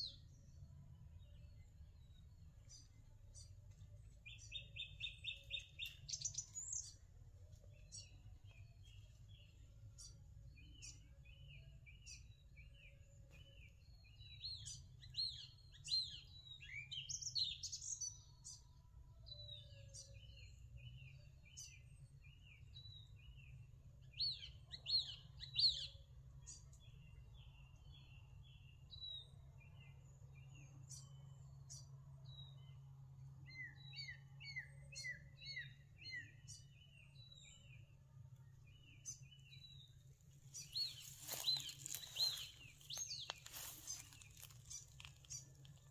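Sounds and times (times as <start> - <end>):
small birds chirping: 1.2 - 18.7, 33.5 - 45.9
sweeping bird calls: 40.5 - 45.9.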